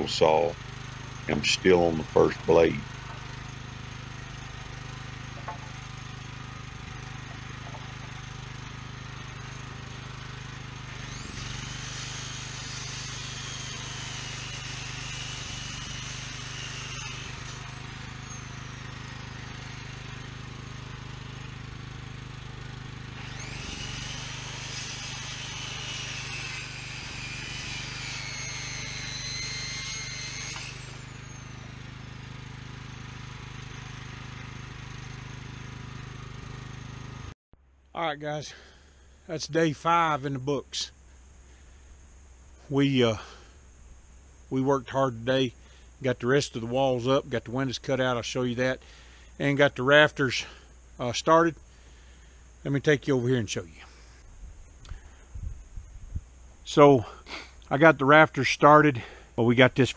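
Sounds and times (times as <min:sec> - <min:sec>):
circular saw cutting lumber: 0:00.0 - 0:37.4, 0:38.2 - 0:43.6, 0:44.2 - 0:54.3, 0:56.6 - 0:59.9
portable generator running: 0:00.0 - 0:37.4.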